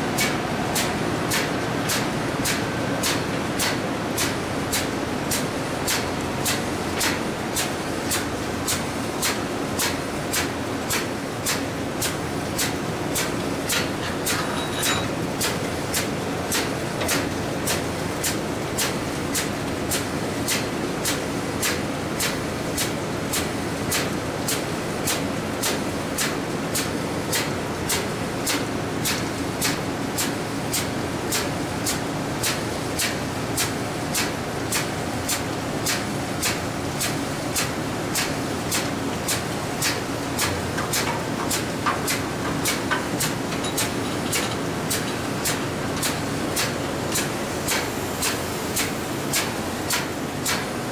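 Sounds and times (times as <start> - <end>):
engine room machinery noise: 0.0 - 50.9
sharp mechanical tick: 30.7 - 36.6, 37.5 - 50.6.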